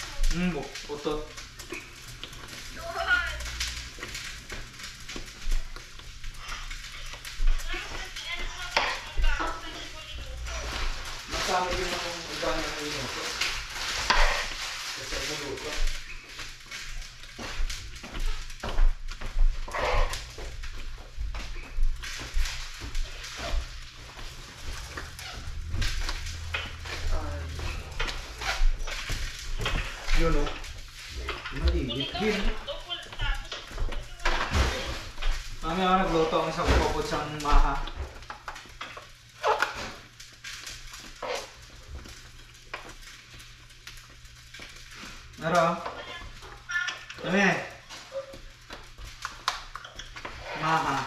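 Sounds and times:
spoon scraping a pot: 14.0 - 14.6.

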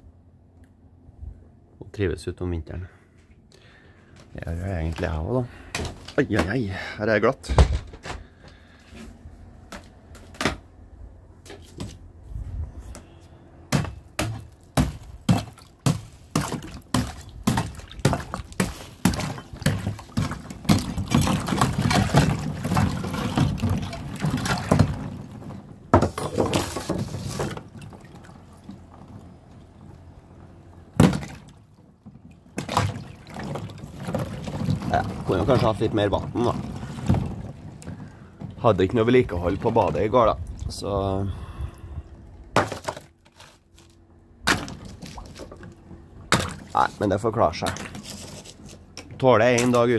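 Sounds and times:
ice cracking and knocking: 13.7 - 28.2, 31.0 - 40.1, 42.6 - 48.8
broken ice splashing in water: 13.8 - 25.5, 32.5 - 40.1.

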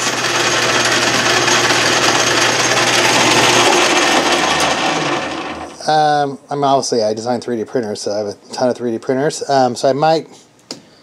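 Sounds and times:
lathe gears meshing loudly: 0.0 - 5.9.

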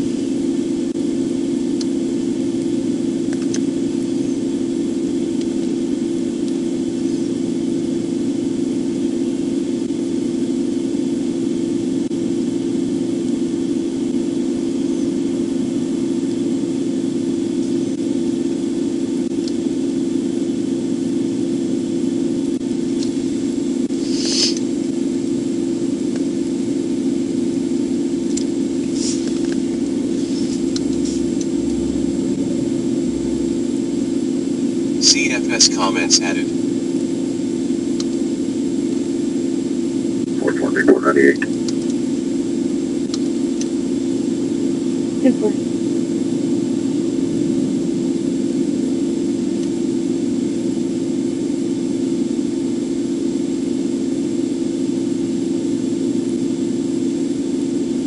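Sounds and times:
car engine idling: 28.5 - 34.9.

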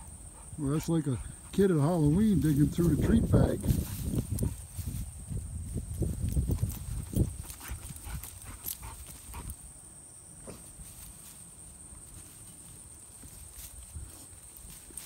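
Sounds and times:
dog digging in dirt: 6.0 - 9.6.

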